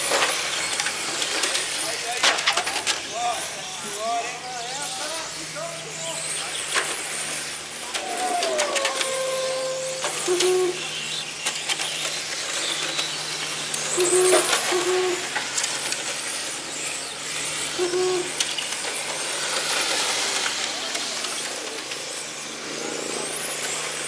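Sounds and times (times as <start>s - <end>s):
rc car motors whining: 0.0s - 24.0s
low hoot-like tones: 7.8s - 11.0s, 13.9s - 15.4s, 17.8s - 18.4s.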